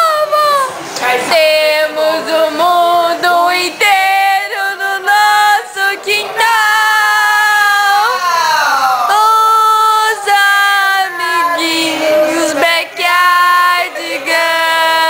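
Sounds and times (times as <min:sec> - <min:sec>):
woman singing long high notes: 0:00.0 - 0:08.3.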